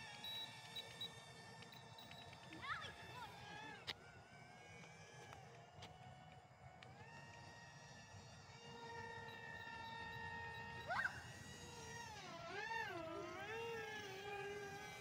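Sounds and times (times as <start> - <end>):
toy plane electric motor whine: 0.0 - 15.0.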